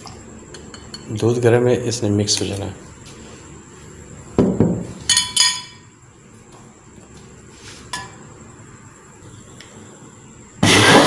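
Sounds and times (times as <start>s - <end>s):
glass clinks: 5.1s - 5.9s.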